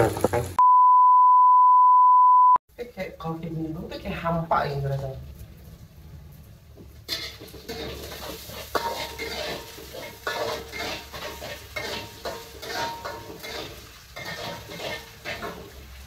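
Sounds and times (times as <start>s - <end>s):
oil sizzling: 0.0s - 0.6s, 3.8s - 16.0s
utensil scraping frying pan: 0.0s - 0.6s, 5.3s - 16.0s.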